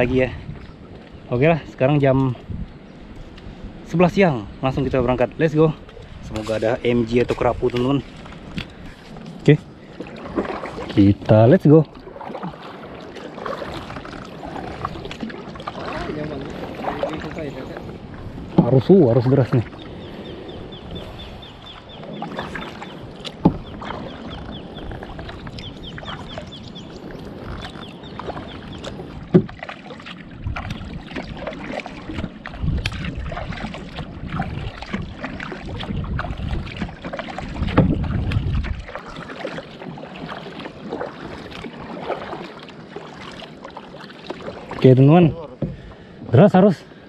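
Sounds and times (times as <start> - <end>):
wind rumble on microphone: 0.0 - 11.9, 13.5 - 29.6, 30.2 - 39.4
paddle splashing in water: 4.8 - 46.7.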